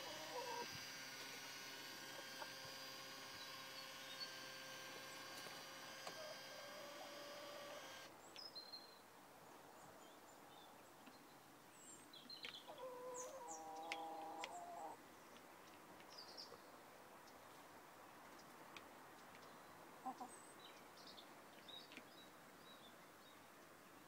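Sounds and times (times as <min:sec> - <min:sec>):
chicken calling: 0:00.0 - 0:00.8, 0:06.0 - 0:07.9, 0:12.7 - 0:15.0
faint motor hum: 0:00.0 - 0:08.1
small birds chirping: 0:00.0 - 0:18.6, 0:19.2 - 0:24.0.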